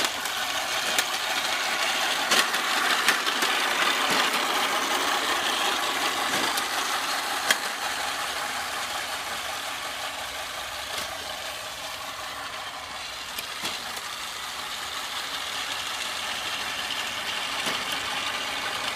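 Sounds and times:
electric lawn mower running: 0:00.0 - 0:18.9.

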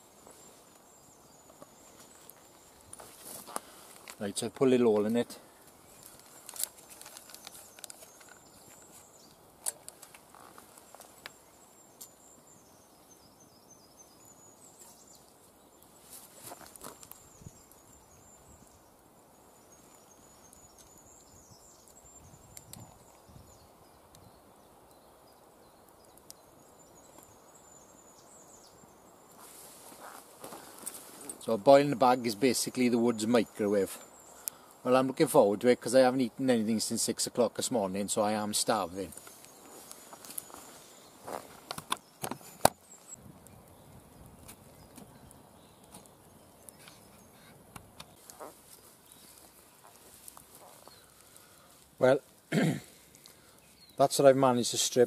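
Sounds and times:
campfire crackling: 0:00.0 - 0:55.0
light handling noises: 0:00.2 - 0:11.4.

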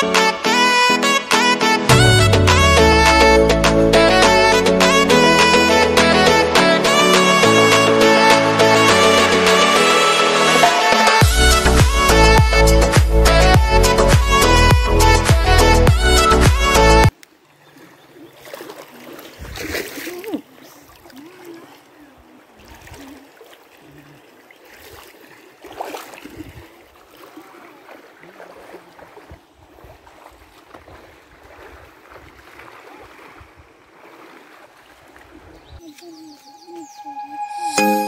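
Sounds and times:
river rippling over stones: 0:17.1 - 0:35.6
feet splashing through water: 0:17.1 - 0:37.0.

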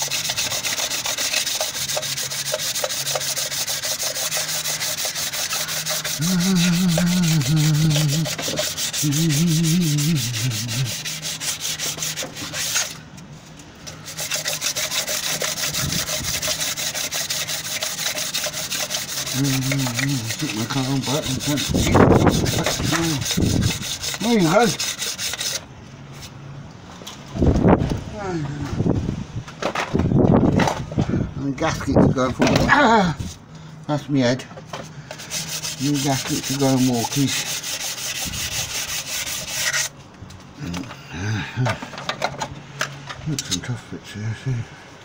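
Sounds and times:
hand scraping and sanding metal: 0:00.0 - 0:26.4, 0:35.0 - 0:40.1
man humming: 0:06.1 - 0:11.1, 0:19.3 - 0:20.6.

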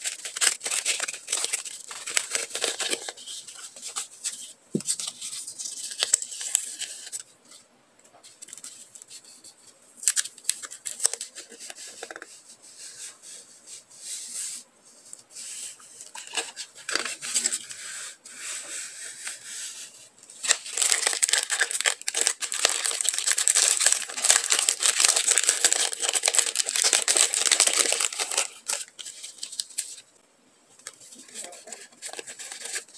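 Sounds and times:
plastic packaging crinkling: 0:00.0 - 0:07.2, 0:10.0 - 0:12.3, 0:20.4 - 0:30.0, 0:30.8 - 0:32.9.

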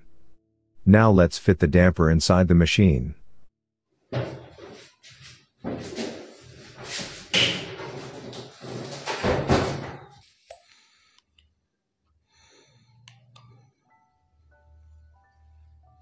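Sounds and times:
washing machine knocking and scraping: 0:04.1 - 0:10.2.

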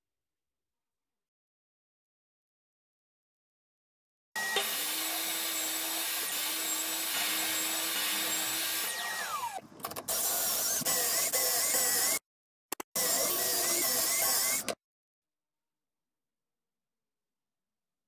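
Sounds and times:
table saw whining: 0:04.4 - 0:12.2.

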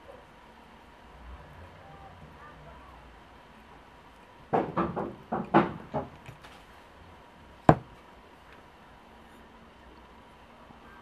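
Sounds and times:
jar knocks on a table: 0:07.7 - 0:07.9.

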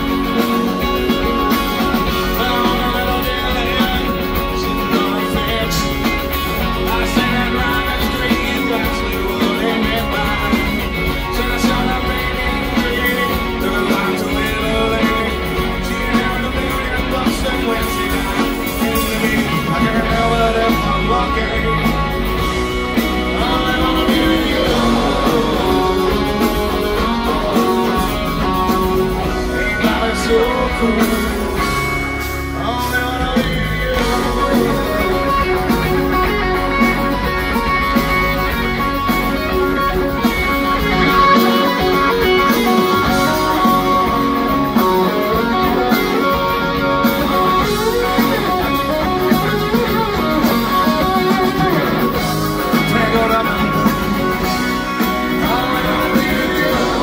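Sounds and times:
electric guitar: 0:00.0 - 0:57.0
live pop-rock band: 0:00.0 - 0:57.0
person singing: 0:00.0 - 0:57.0.

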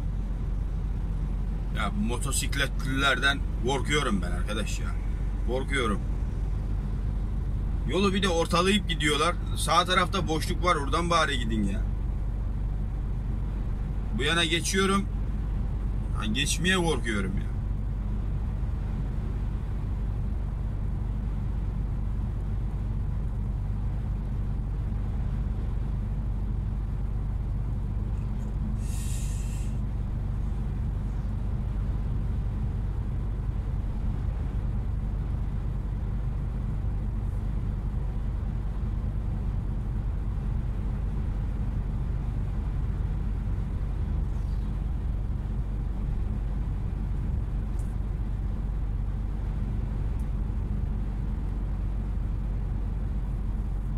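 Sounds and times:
road noise: 0:00.0 - 0:53.9
truck engine drone: 0:00.0 - 0:53.9
short hiss: 0:28.8 - 0:29.9.

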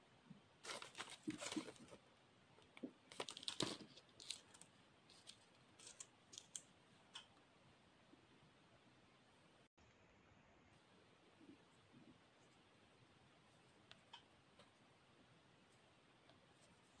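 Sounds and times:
paper rustling and crinkling: 0:00.6 - 0:02.0, 0:03.1 - 0:06.6.

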